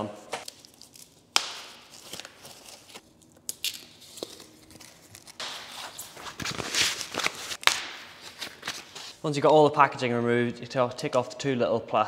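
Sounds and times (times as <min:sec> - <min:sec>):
packaging tearing and crinkling: 0:00.4 - 0:09.2.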